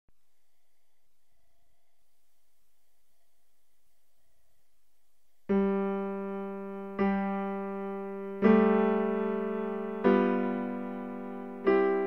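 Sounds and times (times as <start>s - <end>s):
slow piano notes ringing: 5.5s - 12.0s.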